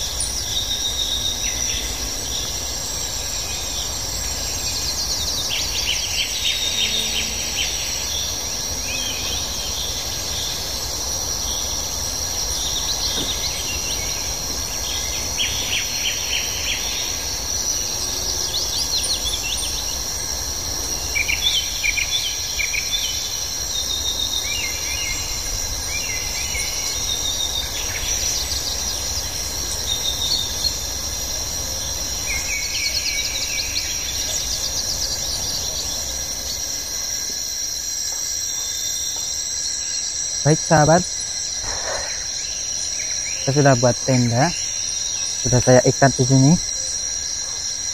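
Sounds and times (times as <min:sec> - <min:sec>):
insects droning: 0:00.0 - 0:47.9
birds chirping rapidly: 0:40.5 - 0:46.7.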